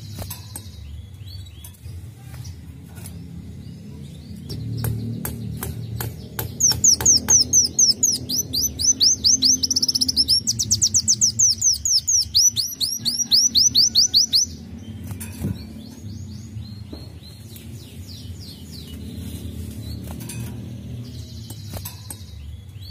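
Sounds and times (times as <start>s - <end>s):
bird whistling song: 4.6s - 19.0s.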